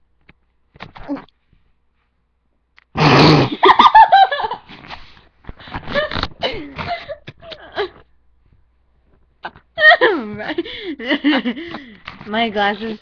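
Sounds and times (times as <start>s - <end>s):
girls laughing shrilly: 3.5s - 4.7s.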